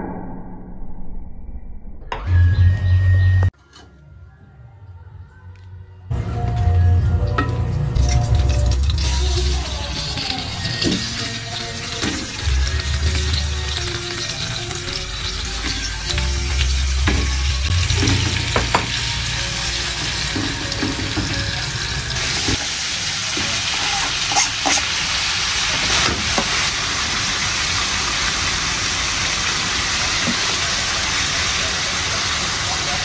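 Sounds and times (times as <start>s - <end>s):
food sizzling in a pan: 8.0s - 33.0s.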